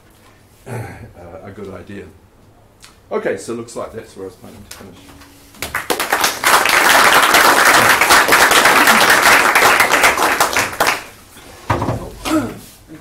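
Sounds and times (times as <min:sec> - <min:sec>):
audience clapping: 0:05.6 - 0:11.2.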